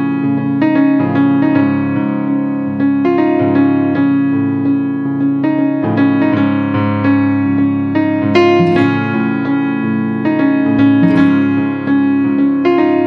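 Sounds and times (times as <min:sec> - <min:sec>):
keyboard instrumental music: 0:08.1 - 0:12.9.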